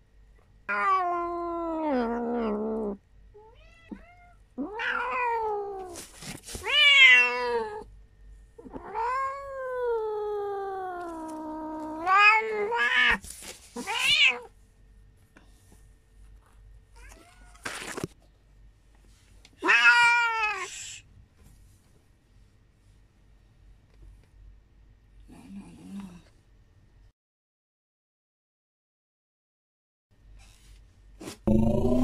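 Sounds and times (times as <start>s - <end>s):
cat yowling: 0.7s - 2.6s, 3.4s - 6.0s, 6.6s - 7.8s, 19.6s - 20.7s.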